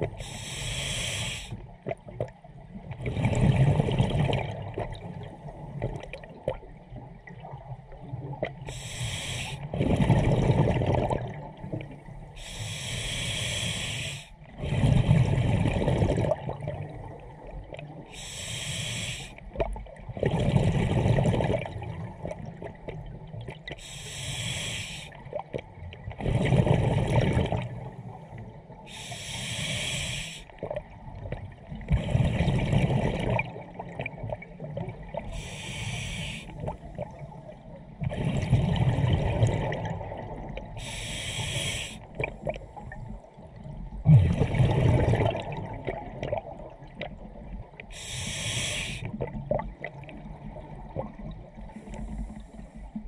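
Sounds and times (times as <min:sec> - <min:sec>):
exhaled air bubbling: 0:00.0 - 0:53.0
regulator inhale hissing: 0:00.2 - 0:01.6, 0:08.7 - 0:09.7, 0:12.4 - 0:14.4, 0:18.1 - 0:19.4, 0:23.8 - 0:25.2, 0:28.9 - 0:30.5, 0:35.3 - 0:36.6, 0:40.8 - 0:42.1, 0:47.9 - 0:49.2, 0:51.8 - 0:53.0.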